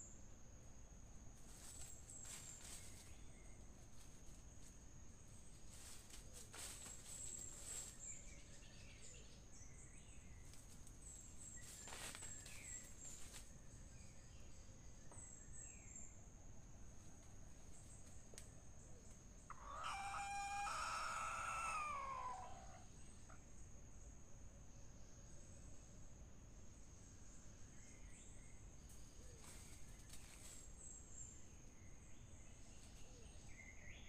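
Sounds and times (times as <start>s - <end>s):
high insect trill: 0.0s - 34.0s
rooster crowing: 19.5s - 22.9s.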